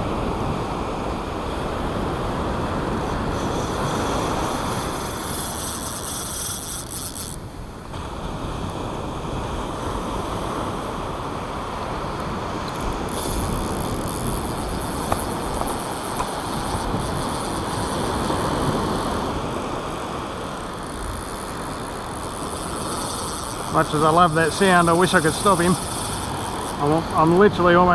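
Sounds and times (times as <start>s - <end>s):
fishing reel drag running: 1.9s - 7.9s, 12.1s - 27.9s
breaking surf: 8.0s - 27.9s.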